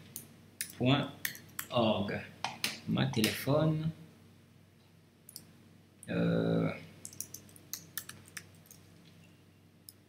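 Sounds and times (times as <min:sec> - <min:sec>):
keyboard typing clicks: 0:07.0 - 0:08.8.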